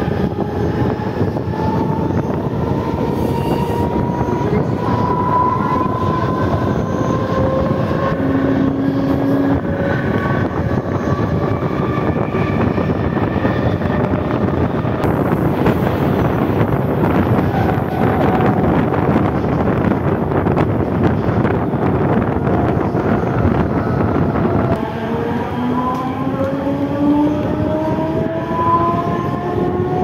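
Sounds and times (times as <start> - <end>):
traction motor whine rising: 0.0 - 20.2, 21.5 - 30.0
train wheels rushing on rail: 0.0 - 30.0
wind rushing: 0.0 - 30.0.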